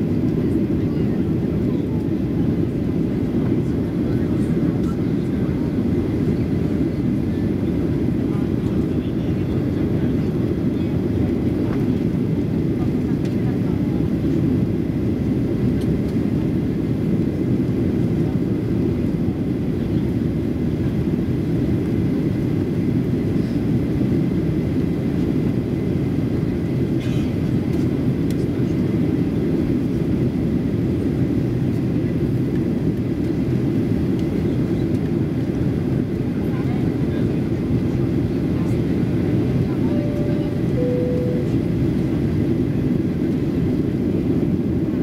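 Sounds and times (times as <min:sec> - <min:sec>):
jet engine drone: 0:37.0 - 0:45.0
faint high whine: 0:39.6 - 0:42.1.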